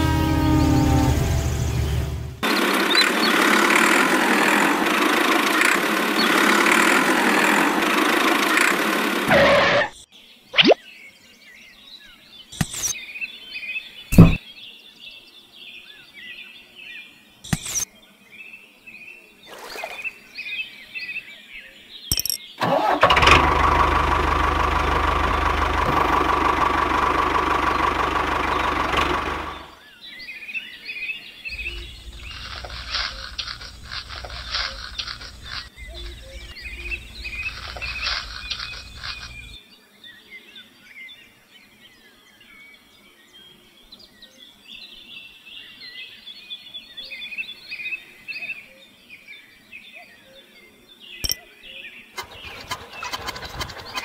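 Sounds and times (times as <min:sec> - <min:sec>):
rattling machine noise: 0:00.0 - 0:09.5, 0:22.6 - 0:29.7, 0:31.5 - 0:39.6, 0:52.2 - 0:54.0
tractor engine running: 0:00.0 - 0:09.6, 0:14.2 - 0:14.4, 0:22.6 - 0:29.8, 0:31.5 - 0:39.6, 0:52.2 - 0:54.0
birds chirping: 0:00.0 - 0:23.0, 0:25.5 - 0:54.0
insects chirping: 0:31.5 - 0:39.6.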